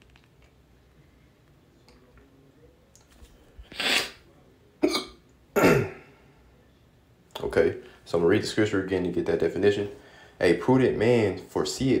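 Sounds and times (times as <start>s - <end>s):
man hiccuping: 4.8s - 6.1s.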